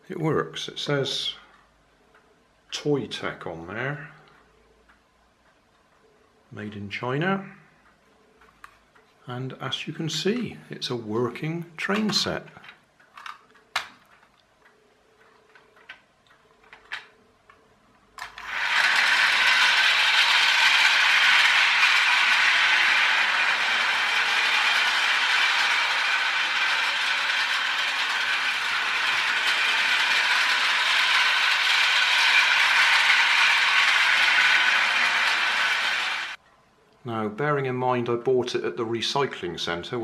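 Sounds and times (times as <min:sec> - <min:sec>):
toy train motor whirring: 0:18.2 - 0:36.4.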